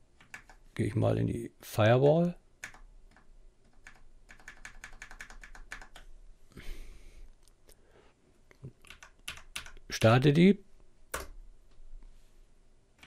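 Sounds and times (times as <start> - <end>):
typing on keyboard: 0.2 - 0.6, 2.6 - 6.1, 8.8 - 9.8
soft hiss: 6.0 - 9.2, 9.8 - 13.0.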